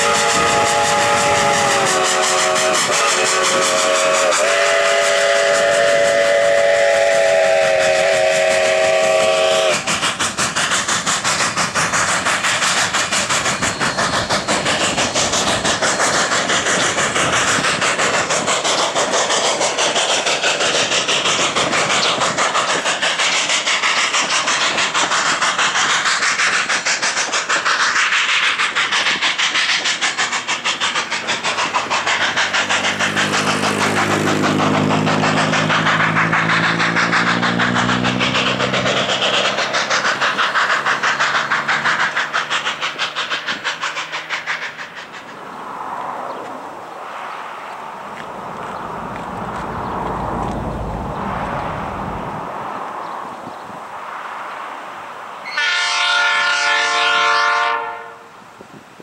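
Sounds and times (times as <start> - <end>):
steam whistle blast: 0.0 - 9.9, 55.5 - 58.4
steam hiss: 0.0 - 59.0
steam locomotive exhaust beat: 0.0 - 59.0.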